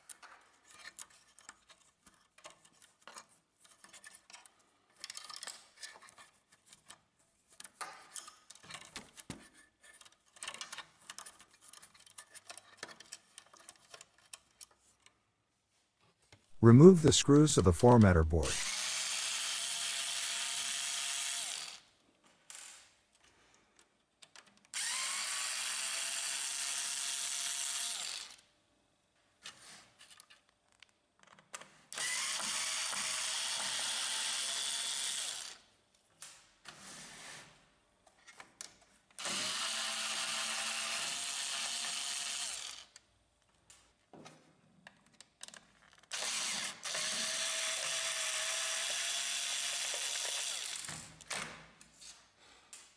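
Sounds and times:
small clicks and handling noises: 0.0 - 15.3, 22.2 - 24.8, 29.4 - 32.0, 38.0 - 39.2, 42.9 - 47.0
electric screwdriver motor whine: 24.8 - 28.4, 32.0 - 35.6, 39.2 - 42.9, 46.1 - 50.9.

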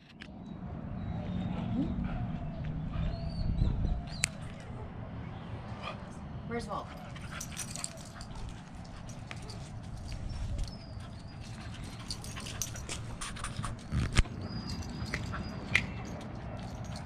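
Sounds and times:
dog claws ticking on concrete: 7.0 - 17.0.

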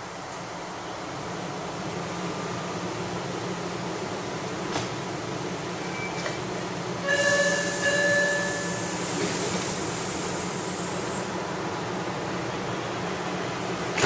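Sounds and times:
subway train humming: 0.0 - 14.0
train pulling out: 1.6 - 14.0
high-pitched warning signal: 7.0 - 9.2.

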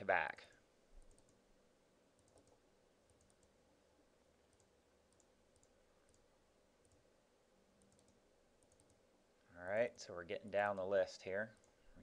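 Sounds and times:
computer mouse clicks: 1.0 - 1.4, 2.2 - 3.6, 4.5 - 7.0, 7.8 - 9.0.

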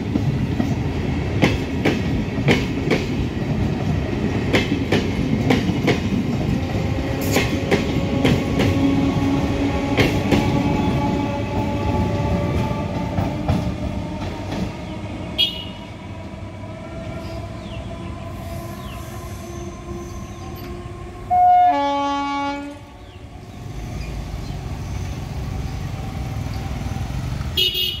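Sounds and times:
low rumble of approaching train: 0.0 - 27.9
train horn blast: 15.3 - 16.0, 18.4 - 23.0.

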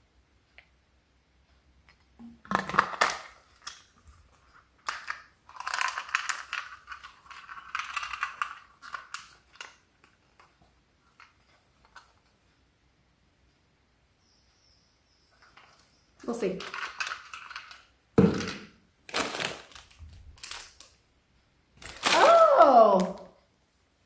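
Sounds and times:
plastic crackling and clicking: 2.4 - 10.6, 15.4 - 21.0, 21.8 - 22.4.

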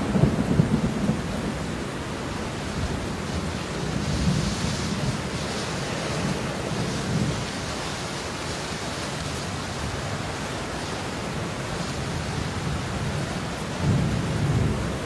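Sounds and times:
low thunder rumbling: 0.0 - 7.8, 12.2 - 15.0
heavy rain: 0.0 - 15.0.

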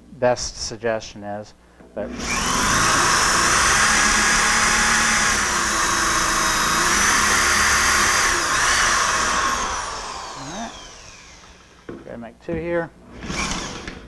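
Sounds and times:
electric drill boring into wood: 2.1 - 11.9, 13.1 - 14.0.

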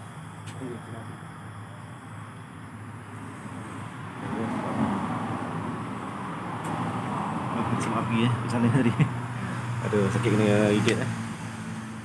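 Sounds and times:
road traffic hum: 0.0 - 12.0
vehicle approaching: 3.0 - 12.0.

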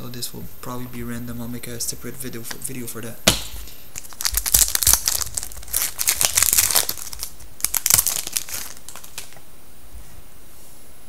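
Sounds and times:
foil wrapper crinkling and tearing: 3.9 - 9.4.

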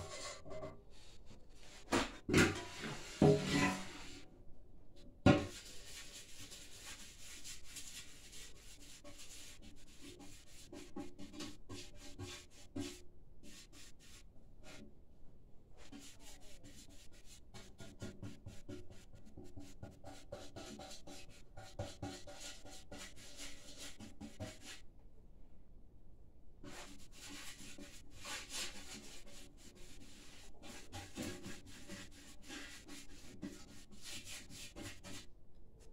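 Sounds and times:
brush rubbing inside metal tank: 0.0 - 4.3, 5.4 - 14.9, 15.8 - 24.8, 26.6 - 35.3.

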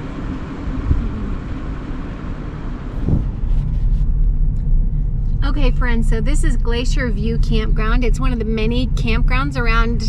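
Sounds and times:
car engine and tyre rumble: 0.0 - 10.0.

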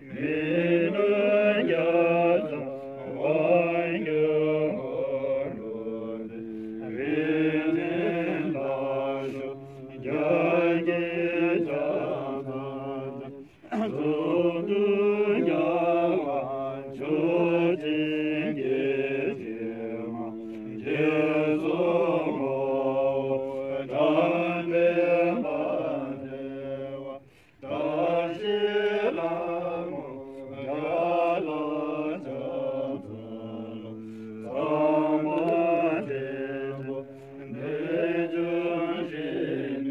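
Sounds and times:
monks chanting: 0.0 - 39.9.

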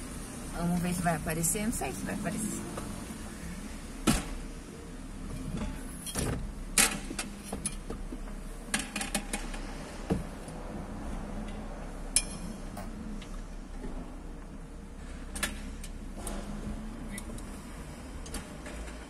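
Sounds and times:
low steady hum: 0.0 - 19.0
wheelchair parts clicking and knocking: 5.4 - 9.7.

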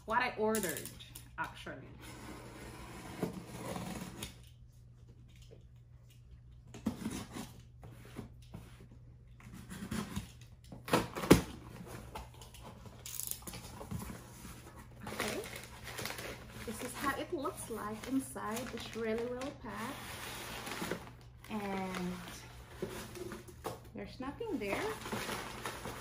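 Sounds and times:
cardboard rustling and scraping: 13.7 - 23.7.

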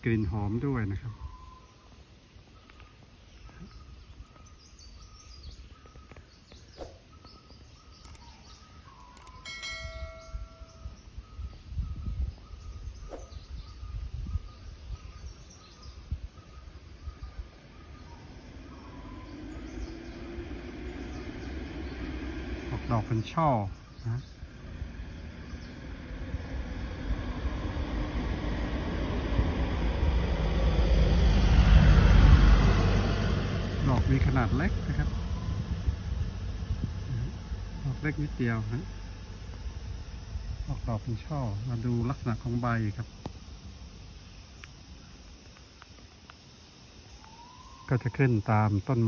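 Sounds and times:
birds chirping: 0.0 - 31.7, 32.5 - 49.0
motor vehicle approaching: 2.5 - 48.4
bell chime: 9.4 - 11.0.

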